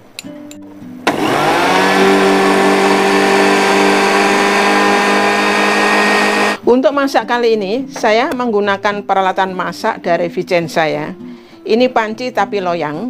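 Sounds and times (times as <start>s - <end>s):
electric blender motor whining: 1.1s - 6.6s.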